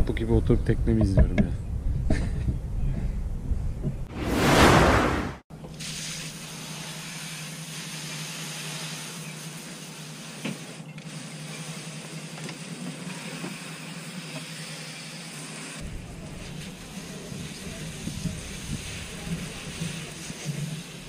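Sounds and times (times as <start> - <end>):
hose spraying water: 5.8 - 15.8, 16.4 - 21.0.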